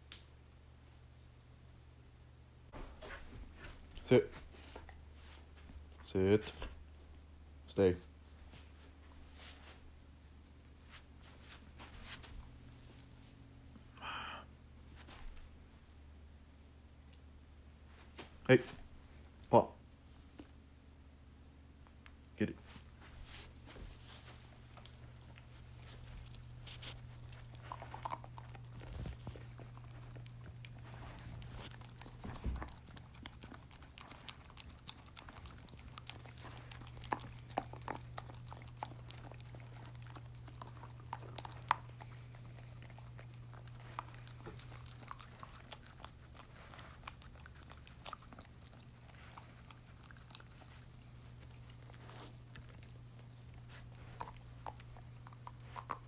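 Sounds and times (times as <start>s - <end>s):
low steady hum: 0.0s - 56.0s
dog gnawing a bone: 24.5s - 56.0s.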